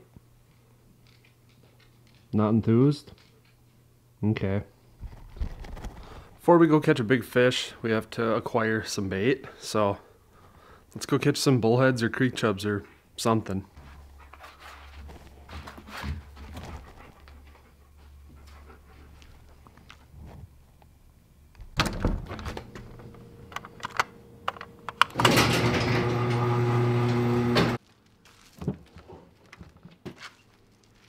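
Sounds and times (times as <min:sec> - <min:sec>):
door being handled: 0:21.6 - 0:24.0.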